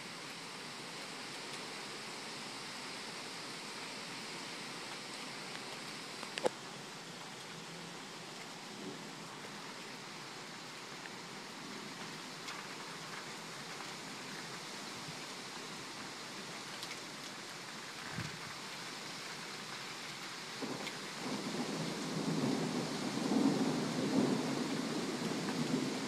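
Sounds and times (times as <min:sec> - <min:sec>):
steady rain hissing: 0:00.0 - 0:26.0
low thunder rumble: 0:20.6 - 0:26.0.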